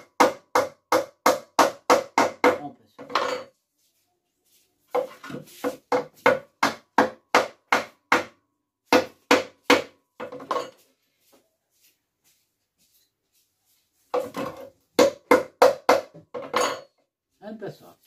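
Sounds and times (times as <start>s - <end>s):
hammer striking nails: 0.0s - 3.4s, 5.8s - 10.6s, 14.2s - 16.9s.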